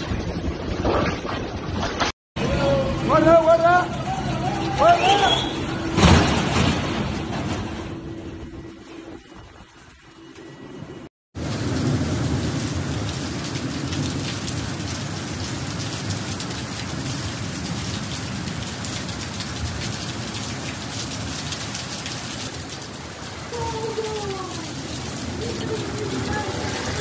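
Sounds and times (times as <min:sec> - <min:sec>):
torrential rain: 0:08.4 - 0:27.0.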